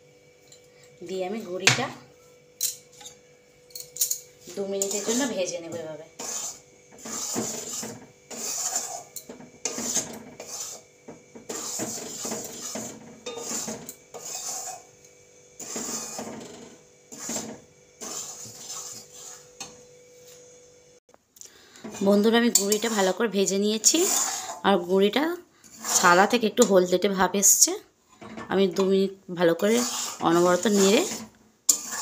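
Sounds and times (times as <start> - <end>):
spatula scraping metal pan: 4.4 - 19.8, 21.8 - 26.8, 29.5 - 32.0.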